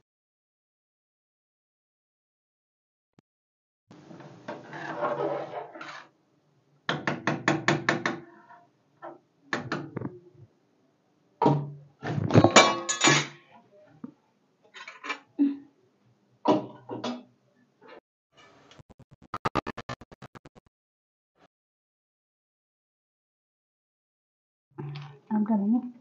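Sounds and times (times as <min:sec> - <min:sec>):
metal ladle scraping metal pan: 0:04.5 - 0:06.1.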